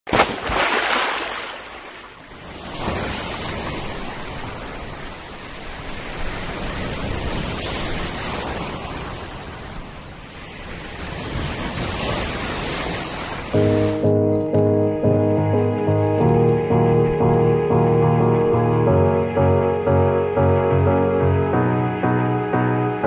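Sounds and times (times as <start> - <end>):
sea surf breaking: 0.1 - 14.1.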